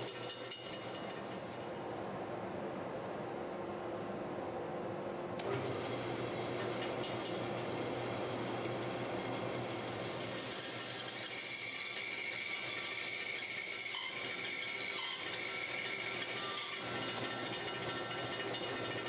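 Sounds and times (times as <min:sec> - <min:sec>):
band saw cutting wood: 0:05.4 - 0:19.0.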